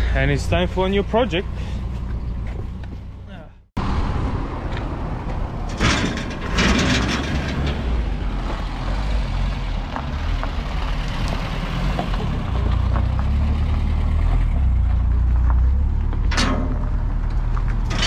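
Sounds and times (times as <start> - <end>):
metal gate clattering: 5.6 - 8.1, 16.3 - 17.0.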